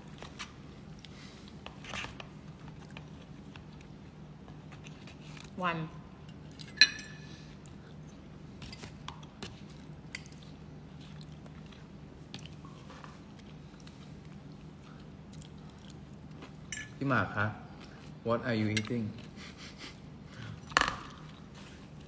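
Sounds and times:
quiet chewing: 0.0 - 5.6, 6.2 - 16.7, 17.7 - 18.2
steady low hum: 0.0 - 22.0.

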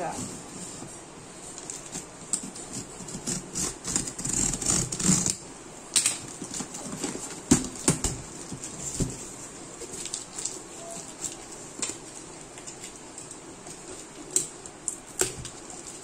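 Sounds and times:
pen scraping packing tape: 2.6 - 5.4.

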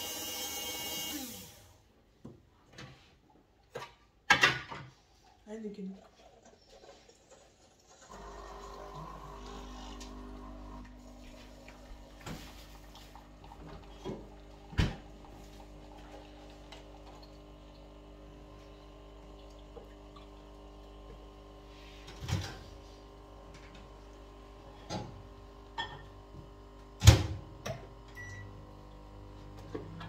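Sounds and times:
appliance hum: 0.0 - 1.8, 7.6 - 30.0
knocks and clatters of cooking: 3.7 - 5.1.

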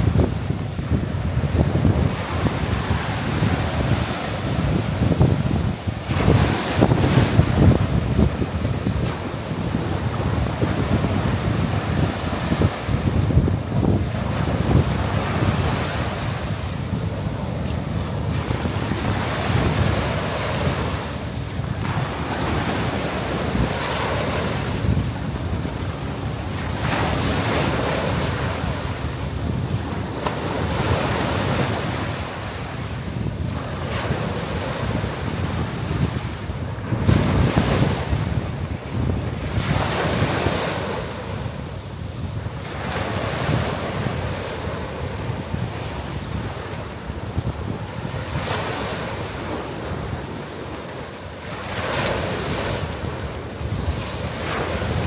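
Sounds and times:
small waves breaking on beach: 0.0 - 55.0
wind buffeting microphone: 0.0 - 55.0.

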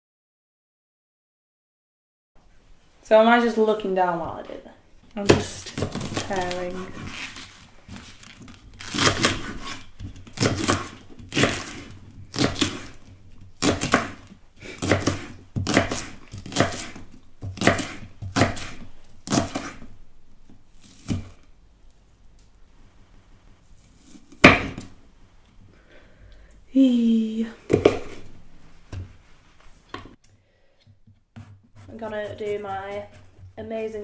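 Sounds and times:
knife chopping on wooden board: 8.9 - 19.9, 24.0 - 24.9, 27.7 - 28.2.

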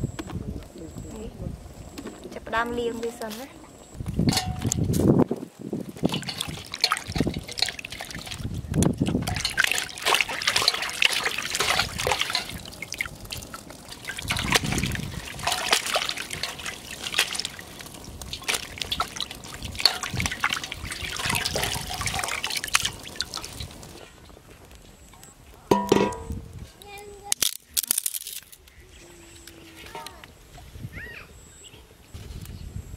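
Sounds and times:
water sloshing and splashing: 5.9 - 24.1.

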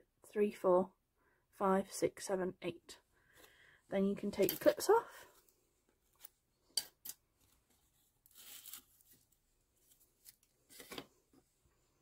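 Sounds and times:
lace rustling: 7.0 - 11.1.

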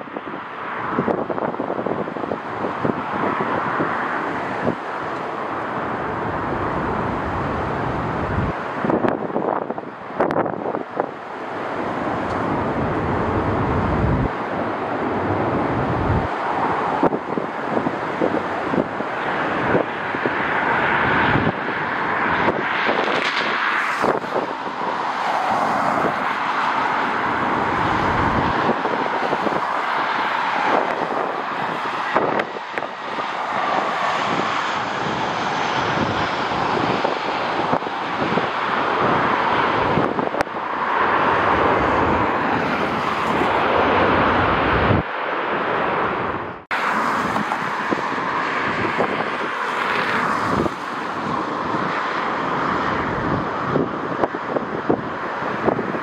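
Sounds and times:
jet engine noise: 0.0 - 56.0
wind buffeting microphone: 0.0 - 56.0.

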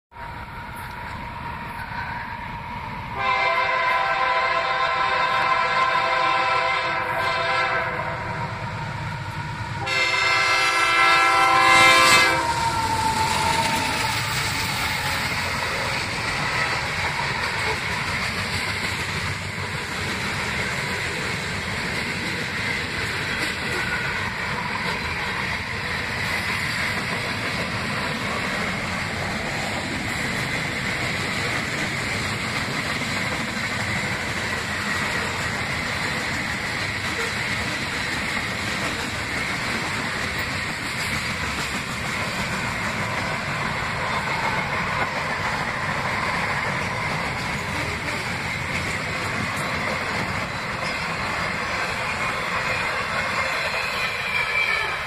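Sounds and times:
locomotive horn blasts: 3.2 - 8.4, 9.8 - 12.9
freight cars rumbling and clattering: 12.4 - 53.8.

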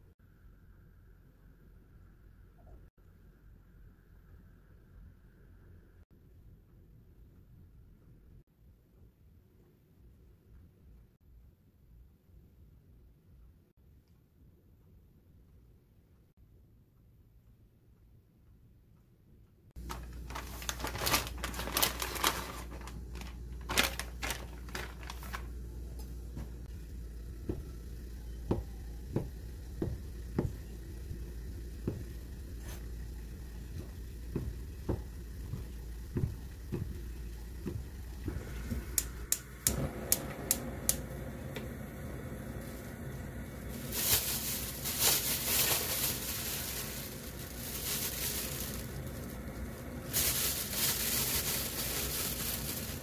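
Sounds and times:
plastic packaging crinkling: 19.8 - 26.6, 43.6 - 53.0.

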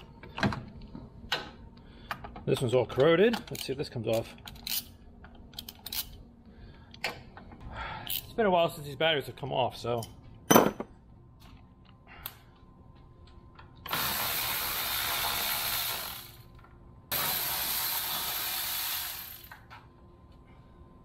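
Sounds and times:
ratchet wrench spinning: 17.1 - 19.6.

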